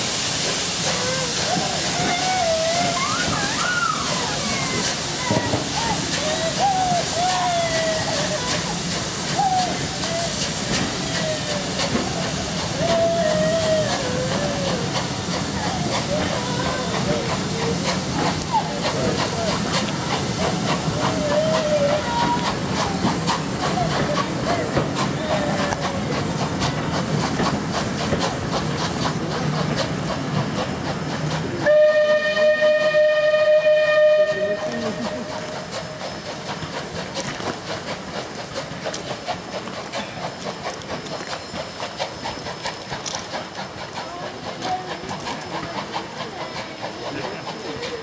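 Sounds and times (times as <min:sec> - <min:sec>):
steam hissing: 0:00.0 - 0:48.0
train wheels rumbling: 0:00.0 - 0:48.0
wheels clicking on rail joints: 0:00.4 - 0:48.0
steam whistle blast: 0:31.6 - 0:34.8.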